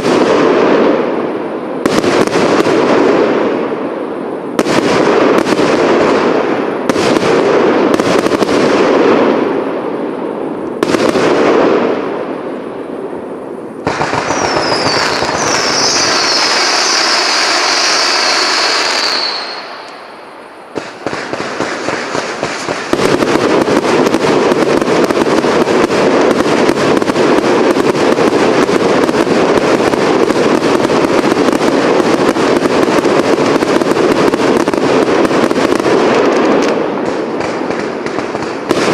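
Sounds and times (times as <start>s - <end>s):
firework bangs and crackling: 0.0s - 38.9s
firework whistle falling in pitch: 14.1s - 20.1s.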